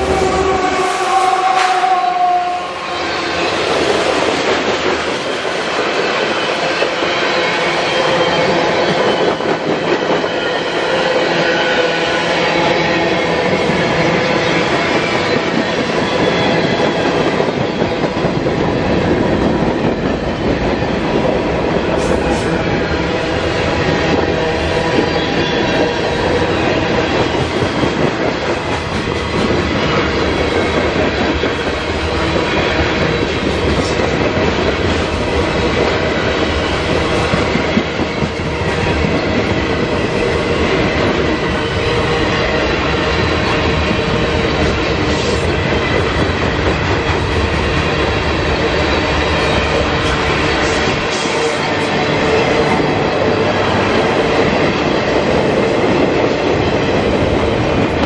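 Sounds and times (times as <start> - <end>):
freight train wheels clattering: 0.0 - 58.0.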